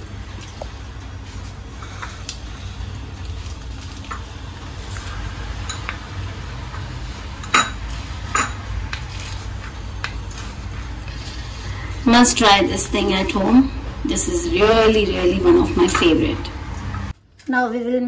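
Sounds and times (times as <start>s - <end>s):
crisp fried egg crackling: 0.5s - 7.2s, 7.8s - 11.3s.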